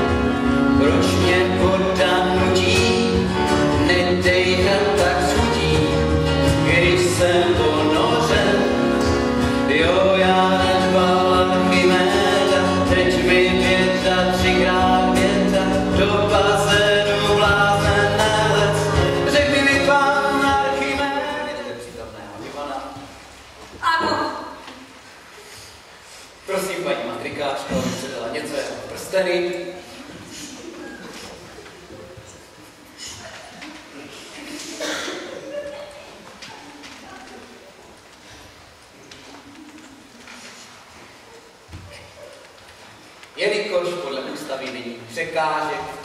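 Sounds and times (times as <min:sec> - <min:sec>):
instrumental accompaniment: 0:00.0 - 0:21.2
person singing: 0:00.0 - 0:21.5.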